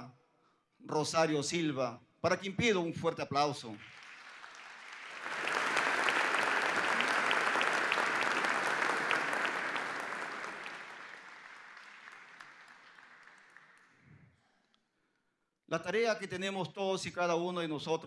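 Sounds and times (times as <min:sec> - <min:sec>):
audience applauding: 0:03.7 - 0:14.1.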